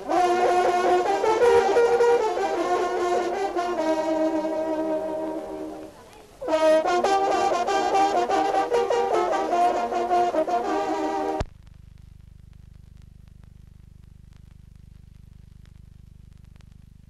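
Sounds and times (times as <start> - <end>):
hunting horns playing fanfare: 0.0 - 11.4.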